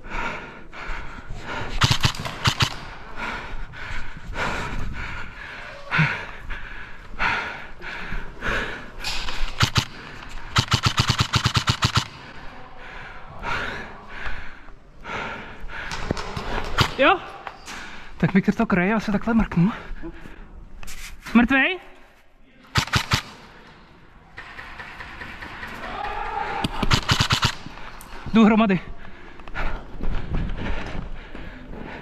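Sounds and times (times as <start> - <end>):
airsoft guns firing: 1.8 - 3.0, 9.2 - 12.4, 15.9 - 17.2, 22.7 - 23.7, 24.4 - 27.9.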